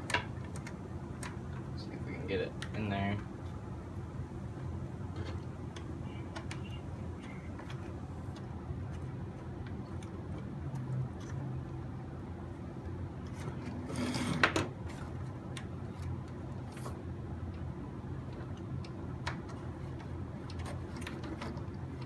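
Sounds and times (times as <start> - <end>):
rattling scrape: 13.6 - 14.5.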